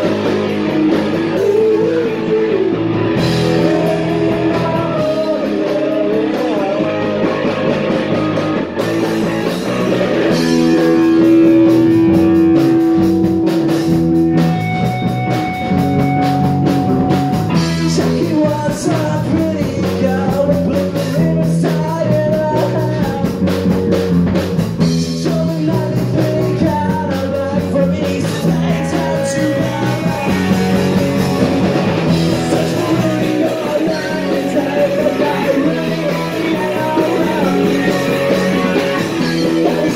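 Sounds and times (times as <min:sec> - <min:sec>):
person singing: 0:00.0 - 0:08.4, 0:17.0 - 0:23.6, 0:24.9 - 0:39.9
drum kit: 0:00.0 - 0:39.9
electric guitar: 0:00.0 - 0:39.9.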